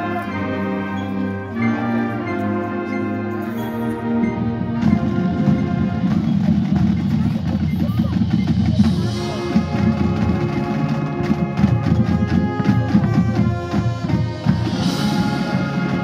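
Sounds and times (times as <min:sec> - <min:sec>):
marching band chords: 0:00.0 - 0:16.0
drum and percussion hits: 0:04.5 - 0:16.0.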